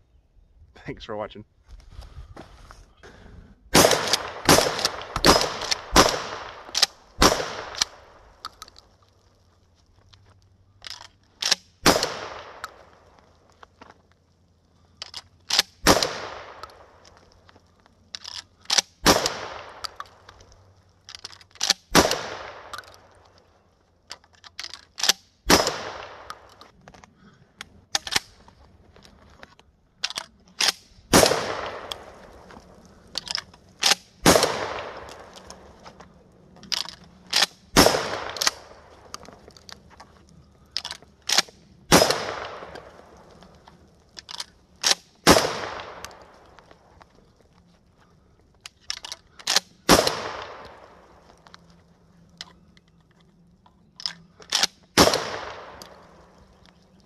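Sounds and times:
shotgun shots echoing: 0:03.7 - 0:08.4, 0:11.4 - 0:13.1, 0:15.5 - 0:17.1, 0:18.7 - 0:20.2, 0:21.6 - 0:23.2, 0:25.0 - 0:26.5, 0:30.6 - 0:32.7, 0:33.3 - 0:35.8, 0:36.7 - 0:39.4, 0:41.2 - 0:43.5, 0:44.8 - 0:46.6, 0:49.5 - 0:51.3, 0:54.5 - 0:56.4
shells being loaded: 0:03.8 - 0:09.3, 0:09.9 - 0:47.6, 0:48.5 - 0:57.0
shotgun pump clacking: 0:48.6 - 0:51.6, 0:54.0 - 0:56.1.

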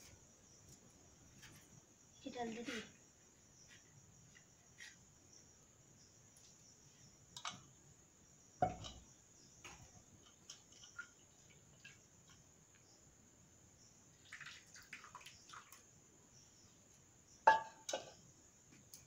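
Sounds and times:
crickets chirring: 0:00.0 - 0:19.0
thump: 0:08.6 - 0:09.0.

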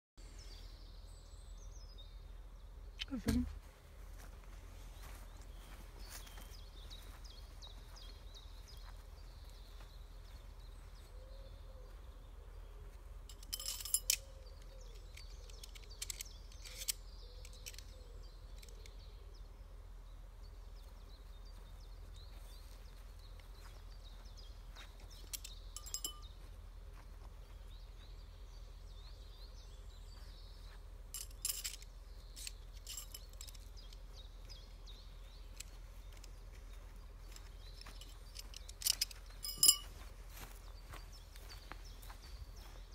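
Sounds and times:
faint birdsong: 0:00.2 - 0:42.9
clicks and rustles: 0:13.2 - 0:19.0, 0:25.0 - 0:26.3, 0:31.1 - 0:34.8, 0:35.4 - 0:40.0.

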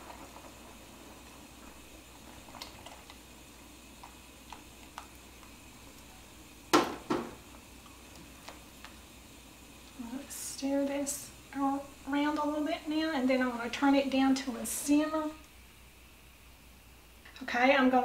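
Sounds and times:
soup bubbling: 0:00.0 - 0:17.0
knocks against a soup pot: 0:06.7 - 0:07.4.

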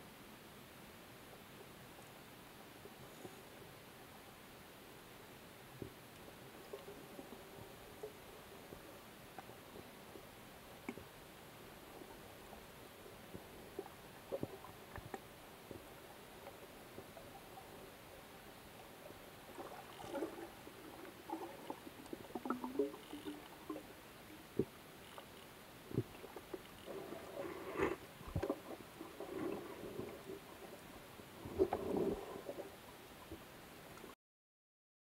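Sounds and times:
faint underwater hiss: 0:00.0 - 0:34.2
bubbly gurgling: 0:19.5 - 0:23.9.

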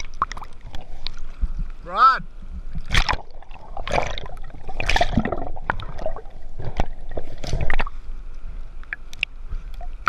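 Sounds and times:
water splashing and gurgling: 0:00.0 - 0:10.0.

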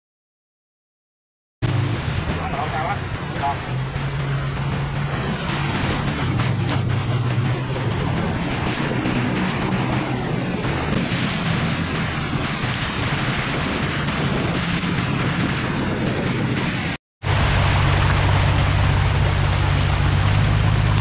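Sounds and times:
speedboat engine droning: 0:01.6 - 0:21.0
water spray splashing off hull: 0:01.7 - 0:16.4, 0:17.2 - 0:21.0.

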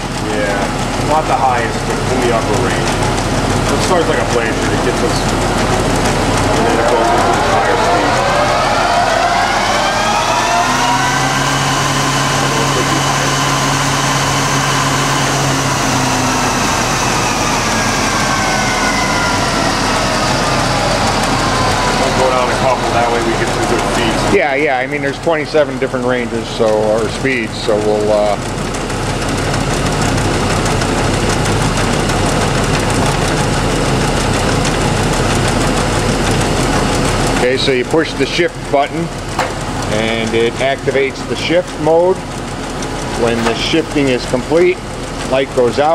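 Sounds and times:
lathe gear whine: 0:00.0 - 0:45.9
low hum: 0:01.8 - 0:27.5.

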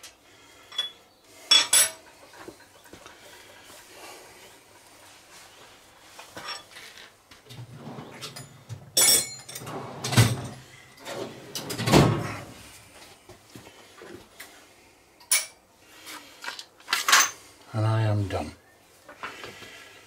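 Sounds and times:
metal tools clanking: 0:00.7 - 0:02.1, 0:06.4 - 0:06.8, 0:07.8 - 0:12.0.

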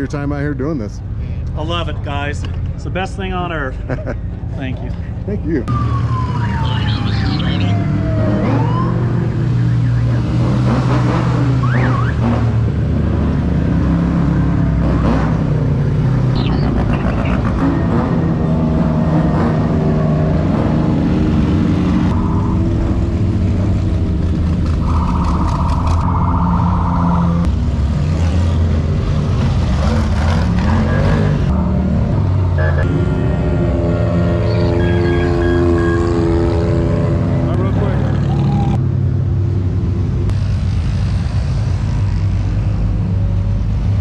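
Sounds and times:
off-road vehicle engines revving: 0:02.2 - 0:44.0
buzzing horn tone: 0:32.6 - 0:37.4.

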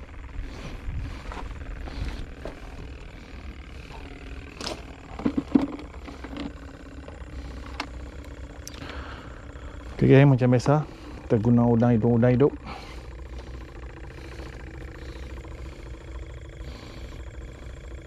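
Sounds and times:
wind buffeting microphone: 0:00.2 - 0:03.3
fishing gear clicks and knocks: 0:04.5 - 0:08.7.

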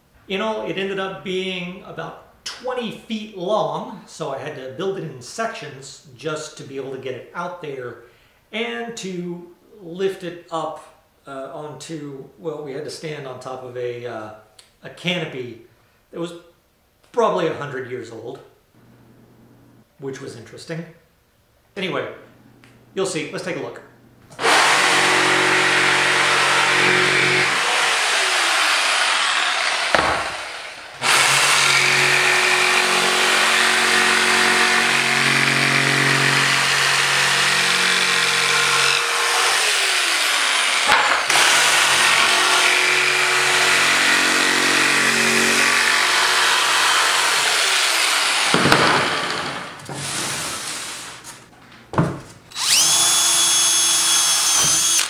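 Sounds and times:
jigsaw cutting plastic sheet: 0:24.4 - 0:50.2, 0:52.6 - 0:55.0
sharp knocks: 0:29.8 - 0:31.0, 0:40.9 - 0:41.5, 0:48.5 - 0:49.7.

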